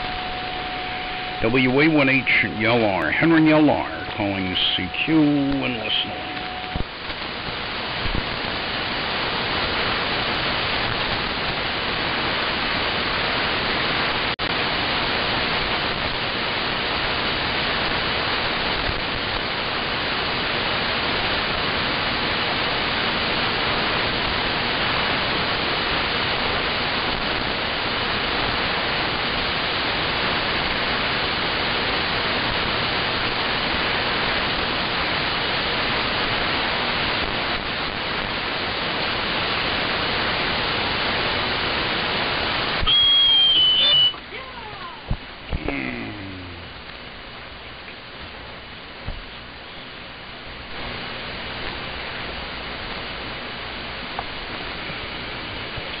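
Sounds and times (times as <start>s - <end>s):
faint steady tones: 0.0s - 23.1s
radio static hiss: 0.0s - 56.0s.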